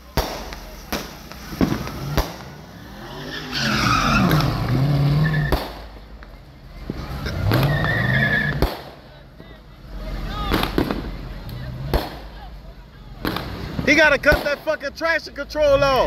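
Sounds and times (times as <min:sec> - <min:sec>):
fireworks bangs: 0:00.0 - 0:03.4, 0:04.1 - 0:15.7
sports car engine revving: 0:00.2 - 0:09.1
tyres squealing: 0:02.4 - 0:05.6, 0:06.8 - 0:09.1.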